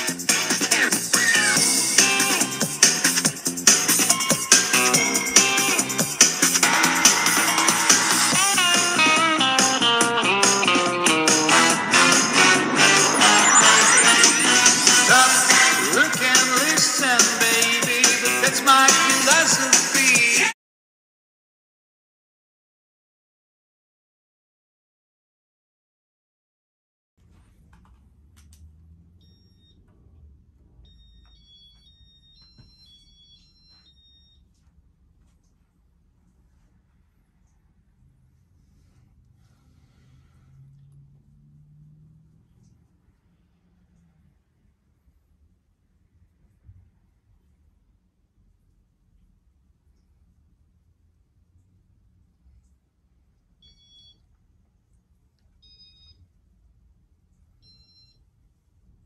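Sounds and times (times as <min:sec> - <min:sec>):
electronic beeping tune: 0:10.7 - 0:16.5, 0:30.8 - 0:34.4
ceiling fan control beeping: 0:29.2 - 0:30.2, 0:30.8 - 0:34.6, 0:53.6 - 0:54.3, 0:55.6 - 0:56.3, 0:57.6 - 0:58.3.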